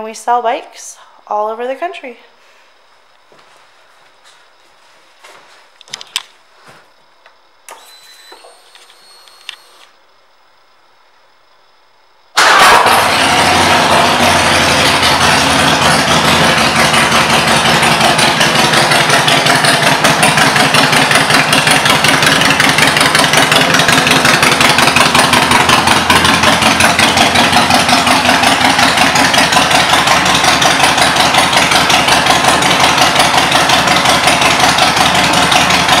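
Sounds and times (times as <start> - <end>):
motorcycle engine idling: 13.0 - 36.0.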